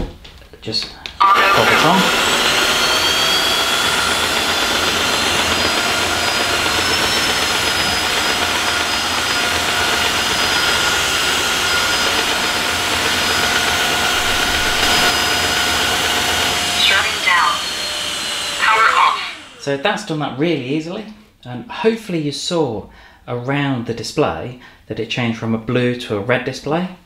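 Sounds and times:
floor washer motor whirring: 1.2 - 20.1.

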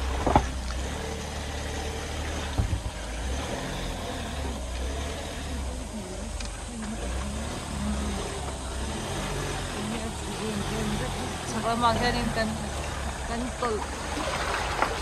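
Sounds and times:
vehicle rumble from inside: 0.0 - 15.0
faint voices: 2.8 - 14.2.

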